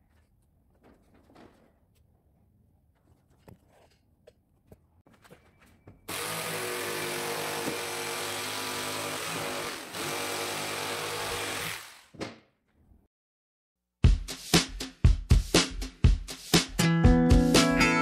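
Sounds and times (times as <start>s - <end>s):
jigsaw cutting board: 6.1s - 12.3s.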